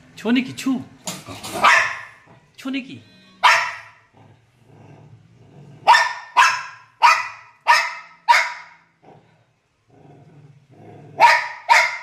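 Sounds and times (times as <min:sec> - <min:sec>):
large dog barking: 0:01.5 - 0:02.3, 0:03.4 - 0:04.1, 0:05.8 - 0:08.8, 0:11.2 - 0:12.0
dog growling: 0:04.0 - 0:06.0, 0:08.9 - 0:11.4.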